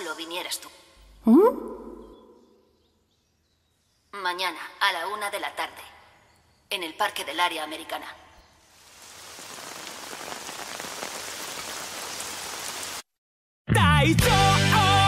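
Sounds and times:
steady rain falling: 0:08.6 - 0:13.1
upbeat song with sung vocal: 0:13.7 - 0:15.0.

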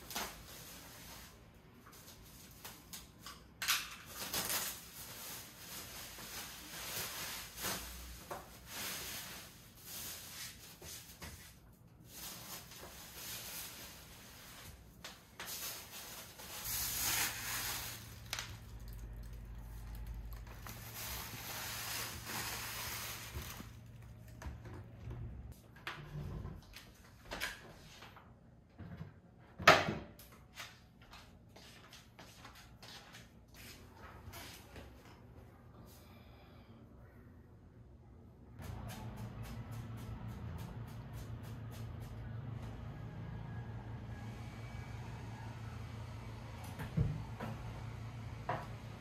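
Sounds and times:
plastic film rustling and crinkling: 0:00.0 - 0:24.4.

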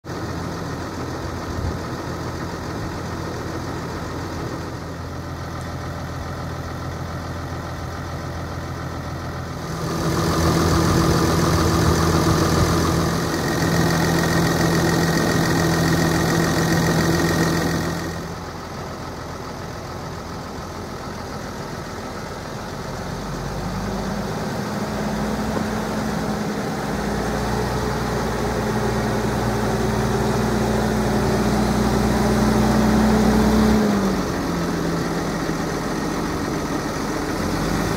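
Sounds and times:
tractor diesel engine idling: 0:00.0 - 0:37.9
deeper hum: 0:09.5 - 0:18.6.

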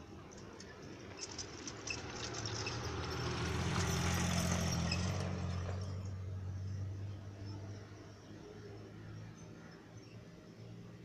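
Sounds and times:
low engine hum: 0:00.0 - 0:09.8.

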